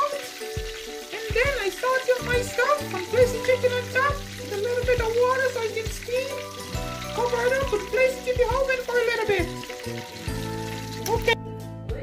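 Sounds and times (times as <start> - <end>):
butter sizzling in a frying pan: 0.0 - 11.4
background music with a beat: 0.4 - 3.1, 5.9 - 12.0.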